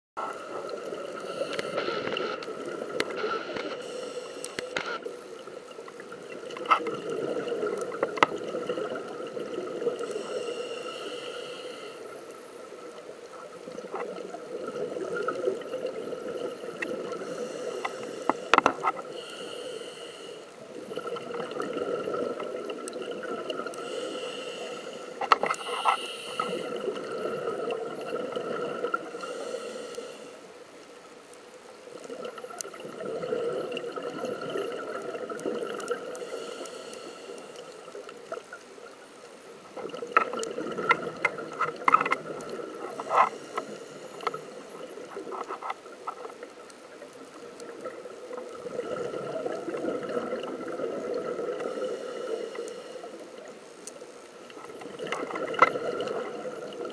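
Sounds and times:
diver breathing through regulator: 1.1 - 2.5, 3.1 - 5.2, 10.0 - 12.3, 17.1 - 21.4, 23.6 - 27.4, 28.7 - 30.5, 35.9 - 37.9, 42.8 - 44.7, 51.6 - 53.5
bubbles gurgling underwater: 5.4 - 10.2, 12.7 - 17.9, 20.6 - 23.8, 26.5 - 29.3, 32.0 - 36.3, 39.8 - 43.0, 46.4 - 52.5, 54.7 - 56.9.

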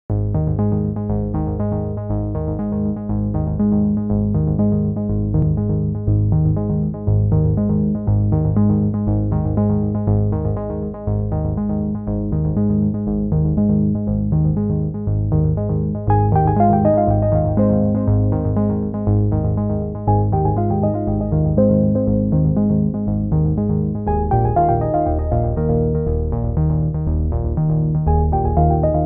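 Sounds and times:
synthesizer keyboard tune: 16.1 - 23.0, 24.1 - 26.6, 28.1 - 29.0.

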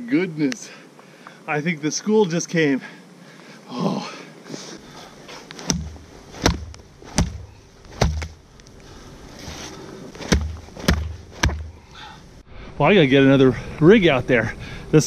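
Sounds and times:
fish thumping against wet mud: 5.6 - 8.4, 10.2 - 11.8.

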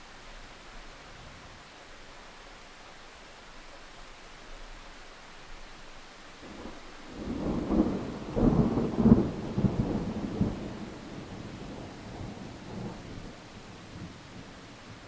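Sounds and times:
steady background hiss: 0.0 - 15.0
thunder rumbling: 6.4 - 15.0.

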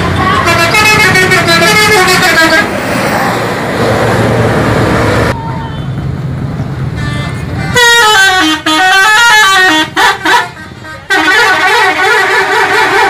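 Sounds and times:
multi-tone bus horn: 0.0 - 2.7, 7.0 - 13.0.

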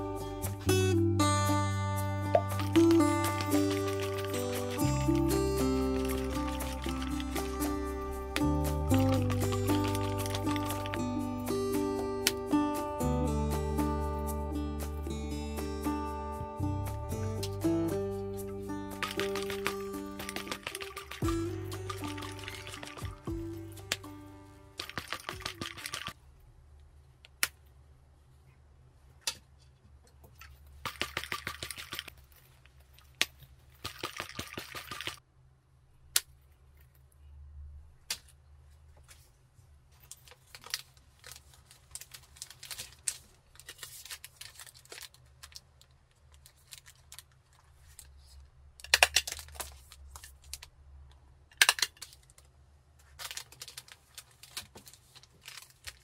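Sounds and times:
plastic sleeve crinkling: 2.4 - 11.0, 18.9 - 24.1, 24.7 - 26.2, 39.9 - 48.4, 49.0 - 50.7, 51.8 - 56.0.

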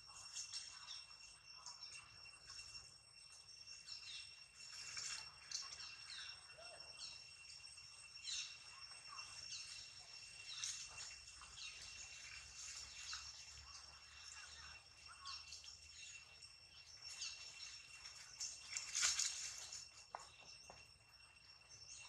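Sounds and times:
birds chirping: 0.0 - 22.0
high-pitched insect drone: 0.0 - 22.0.

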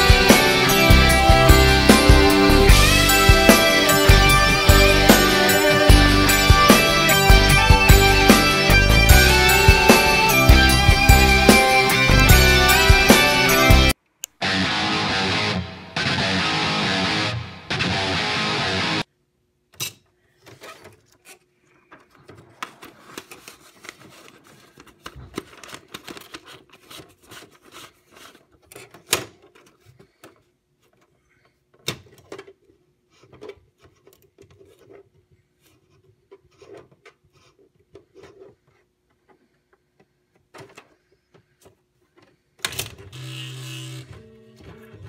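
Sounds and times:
music: 0.0 - 19.0.

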